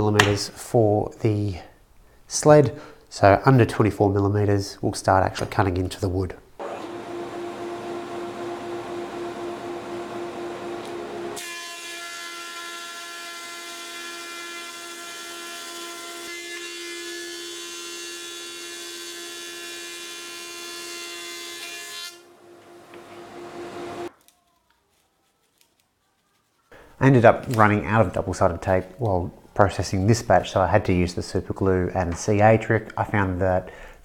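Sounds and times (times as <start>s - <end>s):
thickness planer running: 6.6s - 11.5s, 22.3s - 24.1s
planer cutting wood with high whine: 6.6s - 11.9s, 22.4s - 24.1s.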